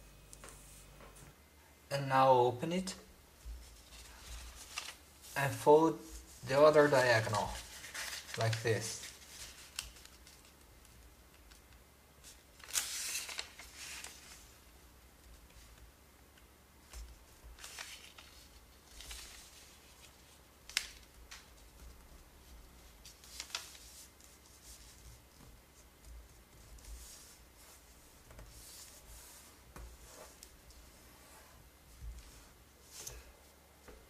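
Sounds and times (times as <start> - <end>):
paper crackles: 3.4 - 5.4, 6.1 - 11.6, 12.2 - 14.6, 16.9 - 30.6
paper rustling and swishing: 3.4 - 10.6, 12.2 - 14.7, 16.9 - 33.3.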